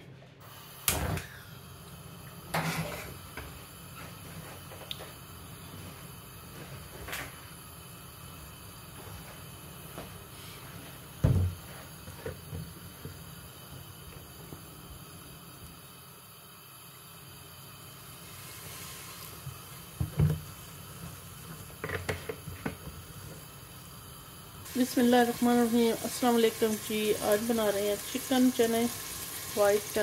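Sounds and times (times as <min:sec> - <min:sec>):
dull kitchen knocks: 0:11.2 - 0:11.6.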